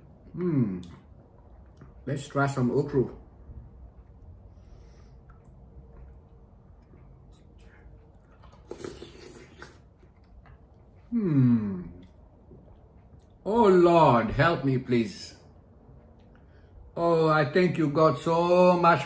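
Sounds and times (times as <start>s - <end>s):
soft chewing: 0.0s - 2.1s, 3.2s - 13.5s, 15.4s - 17.0s
slurp from a spoon: 7.4s - 10.2s
man humming: 11.1s - 12.1s.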